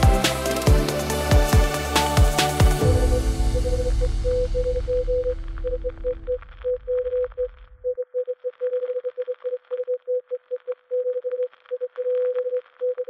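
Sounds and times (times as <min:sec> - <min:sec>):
background music: 0:00.0 - 0:06.6.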